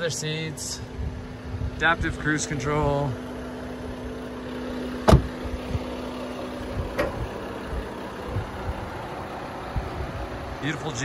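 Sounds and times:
diesel engine idling: 0:00.0 - 0:11.0
loud knock: 0:05.1 - 0:05.3.

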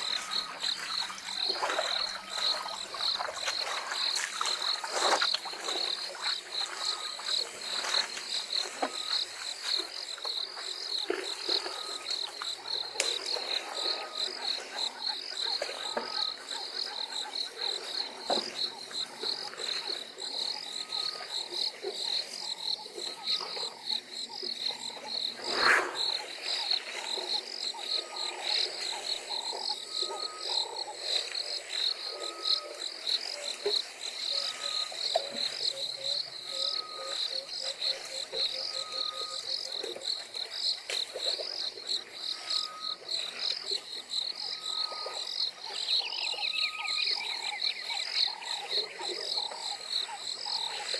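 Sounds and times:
pulsing insect chorus: 0:00.0 - 0:50.9.

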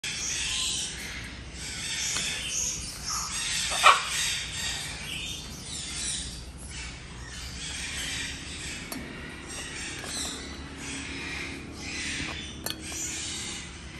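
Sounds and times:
birds chirping: 0:00.0 - 0:13.9
macaw squawk: 0:00.1 - 0:05.0.

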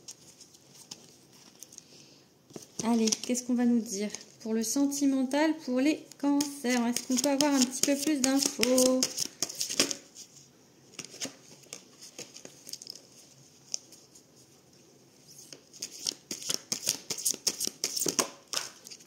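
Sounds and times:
cards being shuffled: 0:02.5 - 0:03.4, 0:06.4 - 0:10.1, 0:10.9 - 0:14.1, 0:15.4 - 0:19.0.

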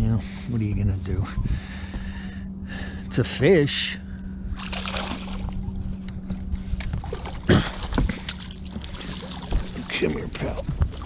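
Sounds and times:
steady low hum: 0:00.0 - 0:11.0
fish splashing at water surface: 0:04.6 - 0:05.5
water sloshing: 0:04.6 - 0:05.8, 0:06.7 - 0:11.0.

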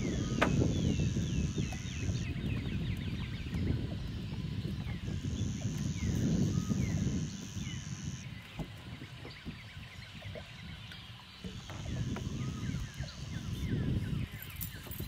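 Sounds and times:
thin high buzz: 0:00.0 - 0:02.4, 0:04.8 - 0:08.3, 0:11.5 - 0:14.0
small birds chirping: 0:00.0 - 0:15.0.

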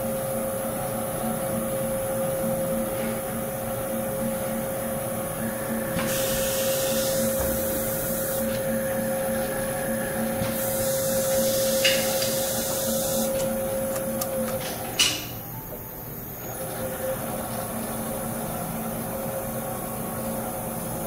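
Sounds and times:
spindle motor humming: 0:00.0 - 0:21.0
long hisses: 0:06.0 - 0:08.6, 0:10.5 - 0:13.4.

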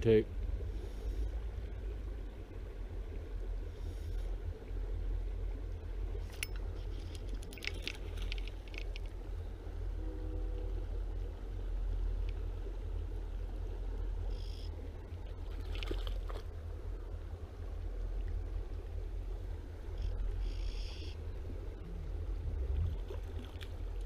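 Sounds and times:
river water rippling: 0:00.0 - 0:24.0
steady low rumble: 0:00.0 - 0:24.0.

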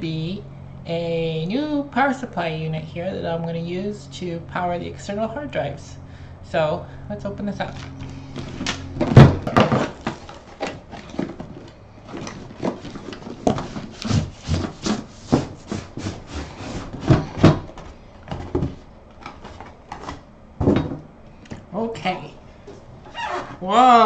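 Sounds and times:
cardboard rustling: 0:07.7 - 0:20.3
cardboard scraping and rubbing: 0:08.3 - 0:17.8.

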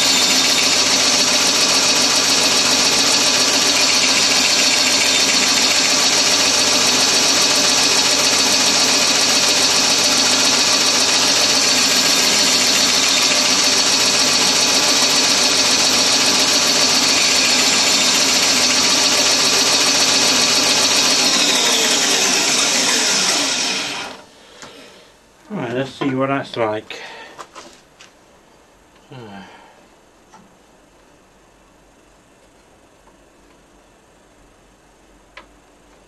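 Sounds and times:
bandsaw cutting wood: 0:00.0 - 0:24.2
motor winding down whine: 0:00.0 - 0:24.2.

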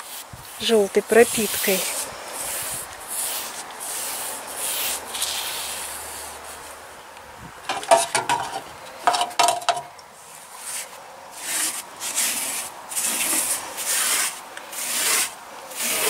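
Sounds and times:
paintbrush swishing on wood: 0:00.0 - 0:06.8
light knocks and clinks: 0:07.7 - 0:09.9.

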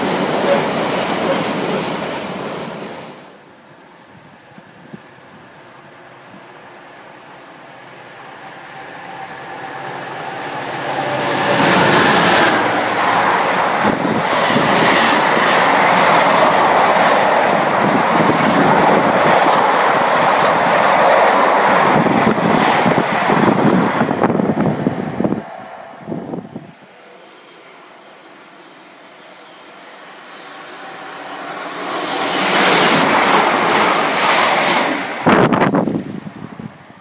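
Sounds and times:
freight train rumble: 0:00.0 - 0:37.0
wheels clattering on rail: 0:11.5 - 0:24.6.

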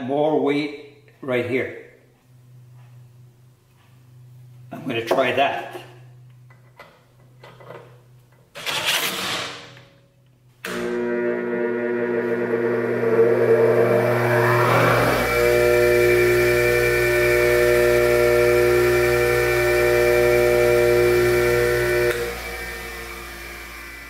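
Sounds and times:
mains hum: 0:00.0 - 0:24.0
bench grinder motor spinning: 0:10.8 - 0:24.0.

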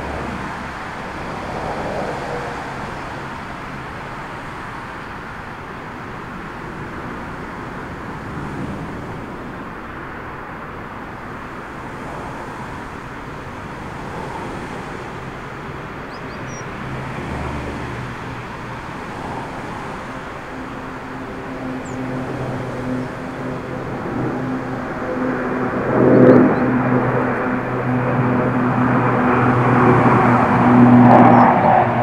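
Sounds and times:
jet engine roar: 0:00.0 - 0:32.0.

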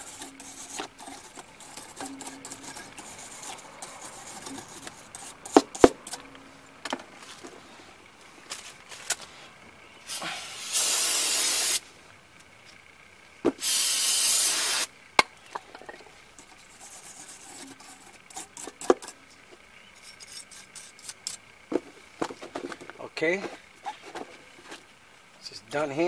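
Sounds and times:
wire brush scratching metal: 0:00.0 - 0:06.4, 0:16.4 - 0:21.4
aerosol spray bursts: 0:10.1 - 0:11.8, 0:13.6 - 0:14.9.

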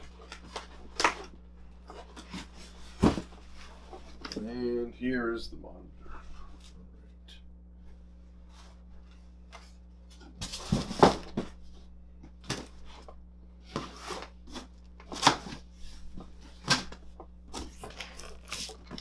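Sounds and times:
box bumps and rustles: 0:01.9 - 0:04.4, 0:10.2 - 0:11.6.

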